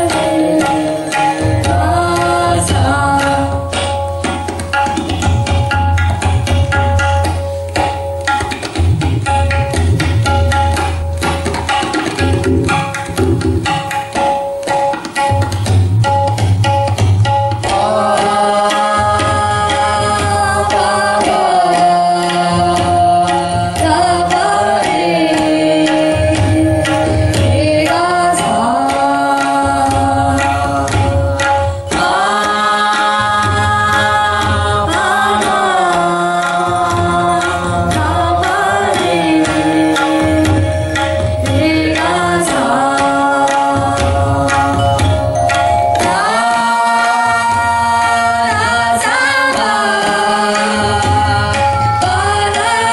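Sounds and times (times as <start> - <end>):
people singing: 0.0 - 3.9, 17.6 - 52.9
tabla strokes: 0.0 - 52.9.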